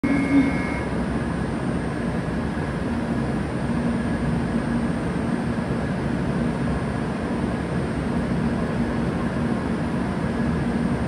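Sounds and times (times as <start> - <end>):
train equipment humming: 0.0 - 4.0.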